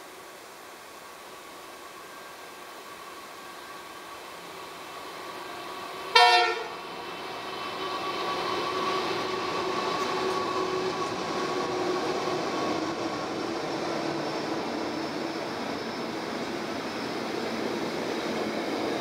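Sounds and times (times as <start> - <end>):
diesel locomotive engines running: 2.1 - 19.0
train horn blast: 6.1 - 6.8.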